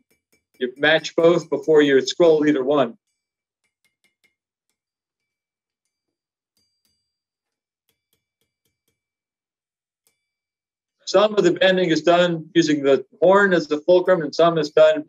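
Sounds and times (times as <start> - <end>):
faint hammer blows on anvil: 0.0 - 2.6.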